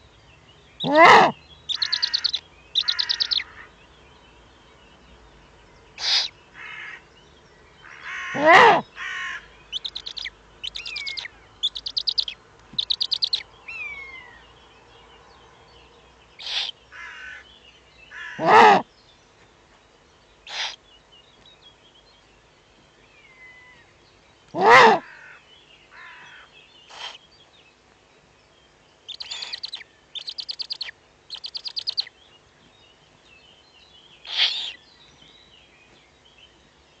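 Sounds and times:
crows cawing harshly: 0:00.8 - 0:03.7, 0:06.0 - 0:07.0, 0:07.8 - 0:09.5, 0:16.4 - 0:17.5, 0:18.1 - 0:18.8, 0:24.6 - 0:26.5.

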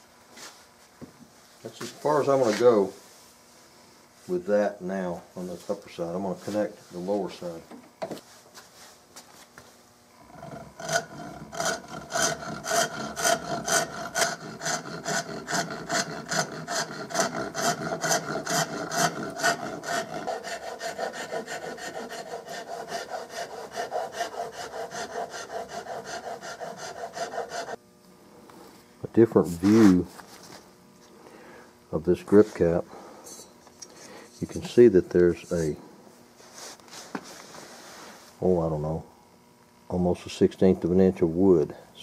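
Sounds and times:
hand file cutting wood: 0:10.3 - 0:27.8.

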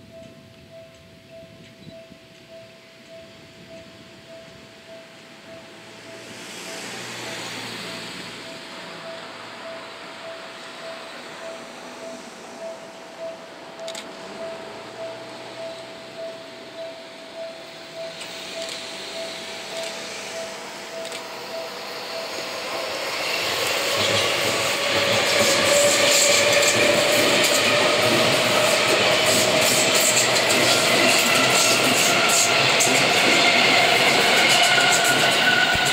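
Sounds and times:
faint pulsing tone: 0:00.0 - 0:24.9
train wheels rumbling: 0:00.0 - 0:35.9
electric train motor whine: 0:01.6 - 0:35.9
wheels clacking over rail joints: 0:21.8 - 0:35.9.

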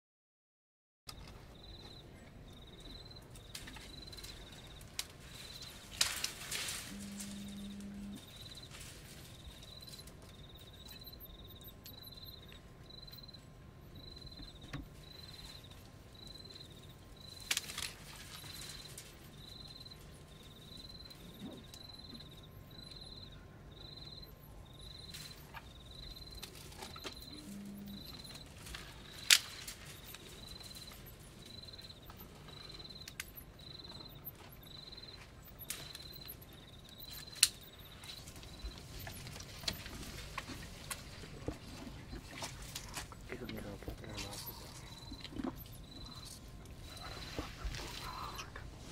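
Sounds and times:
faint low hum: 0:01.1 - 0:48.9
insect chirping: 0:01.1 - 0:48.9
elephant breaking branches: 0:05.5 - 0:07.4, 0:17.4 - 0:19.0, 0:28.6 - 0:30.9.

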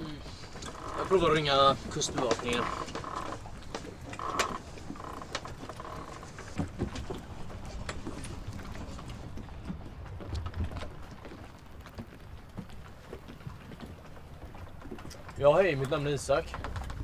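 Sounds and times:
light clicks and patter: 0:00.0 - 0:17.0.

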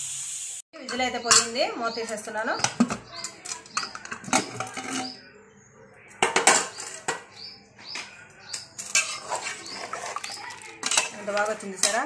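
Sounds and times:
metal lid clinking and scraping: 0:02.6 - 0:05.2, 0:08.5 - 0:12.0.

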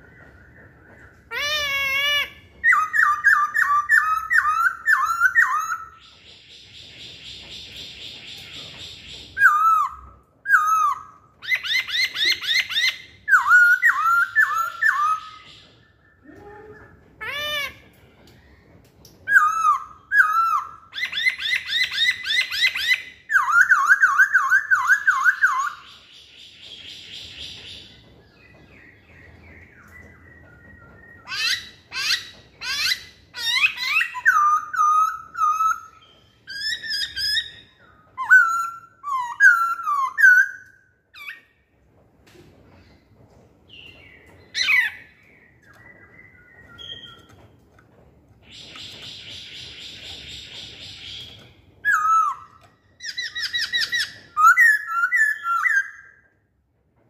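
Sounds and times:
bird singing whistled notes: 0:43.7 - 0:47.4.

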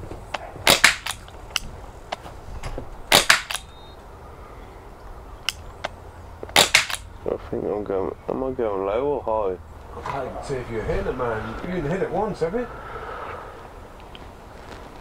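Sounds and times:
air rifle firing cracks: 0:00.6 - 0:01.6, 0:03.1 - 0:03.7, 0:06.5 - 0:07.1.

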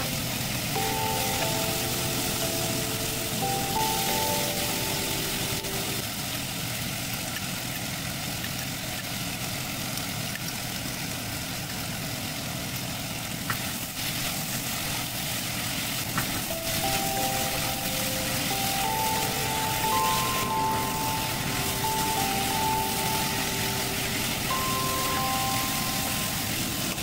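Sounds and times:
soft background music: 0:00.0 - 0:06.4, 0:16.2 - 0:27.0
food sizzling in a frying pan: 0:00.0 - 0:27.0.

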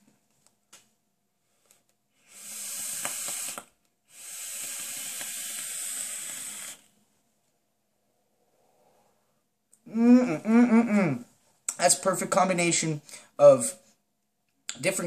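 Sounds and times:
breathy hiss of exhaled vapour: 0:02.2 - 0:07.0, 0:08.2 - 0:09.4.

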